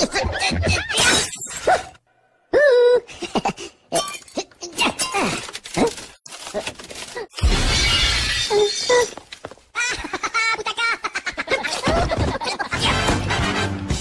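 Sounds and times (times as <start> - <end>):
glass shattering: 7.4 - 9.1.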